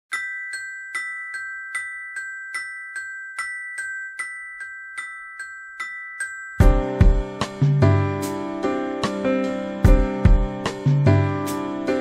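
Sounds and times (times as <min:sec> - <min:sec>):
glockenspiel-like mallet notes: 0:00.1 - 0:08.7.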